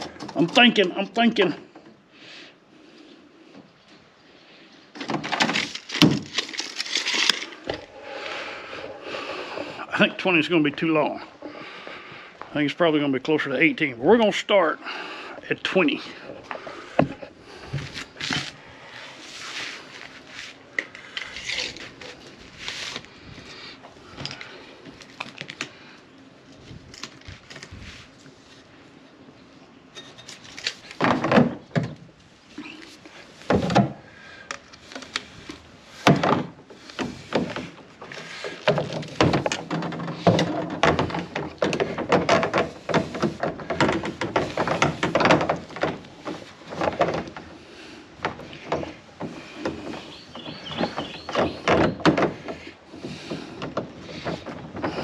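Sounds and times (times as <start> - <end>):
plastic pipe knocks and clacks: 38.5 - 47.5.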